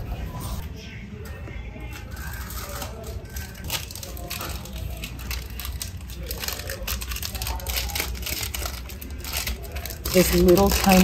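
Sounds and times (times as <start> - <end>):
plastic packaging crinkling: 2.1 - 11.0.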